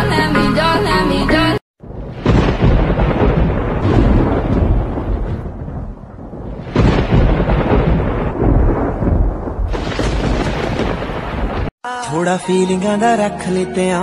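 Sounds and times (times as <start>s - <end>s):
loud thunder clap: 1.8s - 11.7s
thunder rumbling: 1.8s - 11.7s.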